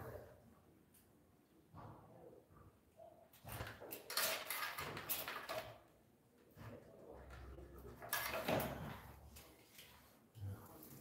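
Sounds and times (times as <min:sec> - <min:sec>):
tile and tools scraping and clinking: 0:03.4 - 0:05.9, 0:06.7 - 0:11.0.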